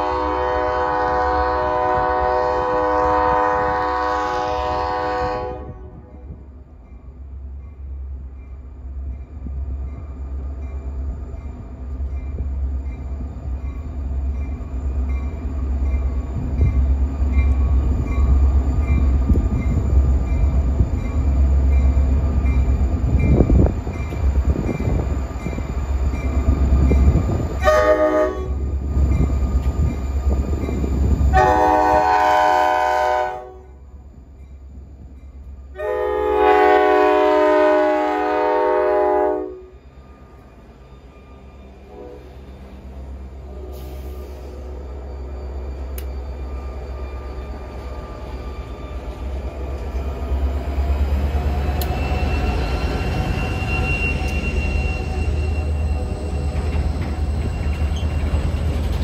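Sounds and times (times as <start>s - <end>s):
train air horn blasts: 0.0s - 6.4s, 27.6s - 28.6s, 31.3s - 33.8s, 35.7s - 39.8s, 41.9s - 42.3s
diesel locomotive engine rumble: 0.0s - 59.0s.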